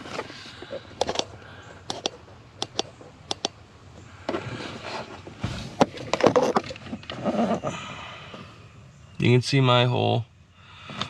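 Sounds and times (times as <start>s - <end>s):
handling noise clicks and knocks: 1.0s - 1.3s
rustling with bumps: 4.2s - 7.8s.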